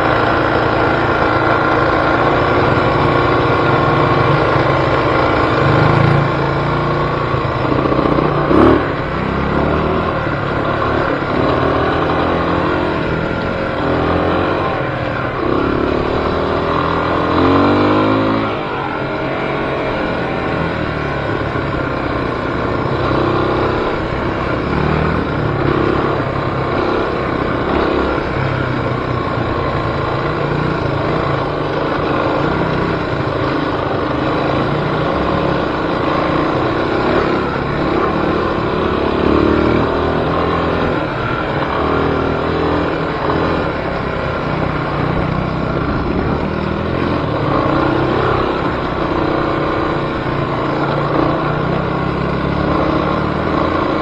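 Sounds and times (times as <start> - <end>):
off-road vehicle engine running: 0.0 - 54.0.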